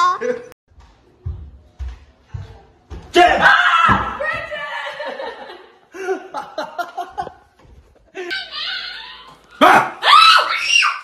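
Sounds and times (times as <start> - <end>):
loud startled scream: 8.4 - 11.0.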